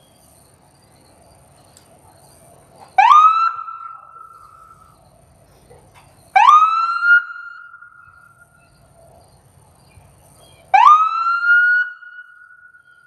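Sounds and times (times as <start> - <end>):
siren wailing: 3.0 - 4.8, 6.4 - 8.4, 10.7 - 13.0.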